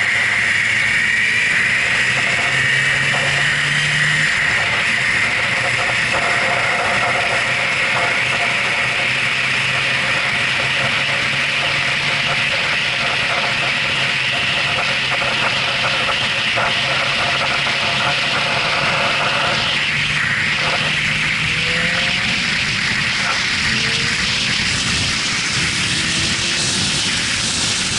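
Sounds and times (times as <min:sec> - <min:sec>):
motorcycle engine cruising: 0:00.0 - 0:27.9
wind rushing on helmet: 0:17.4 - 0:27.9.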